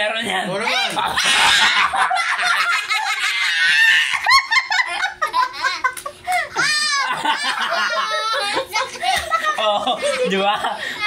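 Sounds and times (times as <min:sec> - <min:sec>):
people laughing hard: 0:00.9 - 0:11.0
high-pitched shriek of laughter: 0:03.1 - 0:04.3.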